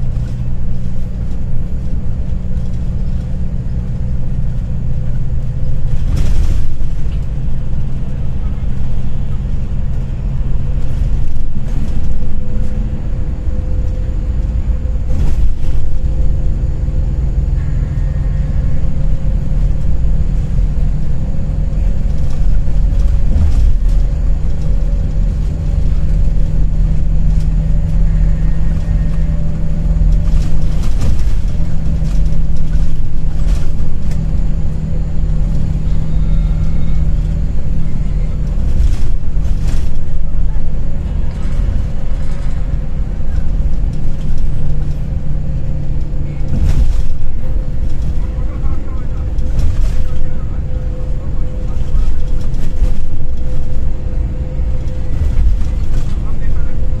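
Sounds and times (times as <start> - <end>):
bus engine and road rumble: 0.0 - 57.0.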